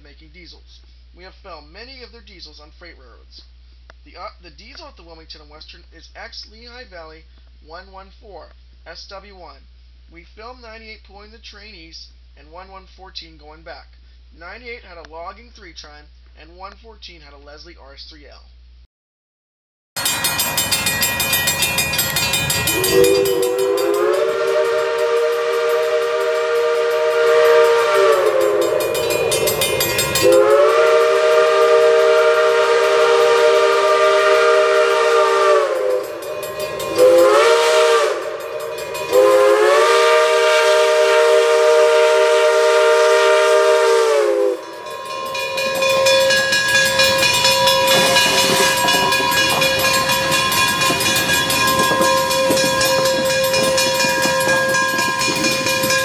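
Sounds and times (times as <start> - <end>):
steam locomotive hiss and running: 20.4 - 56.0
steam whistle blasts: 22.6 - 56.0.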